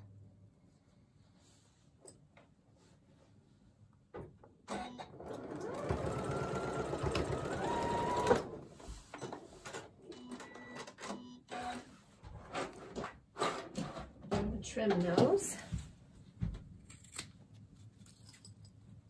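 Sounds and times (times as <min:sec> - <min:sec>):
sewing machine motor whine: 0:04.7 - 0:08.6.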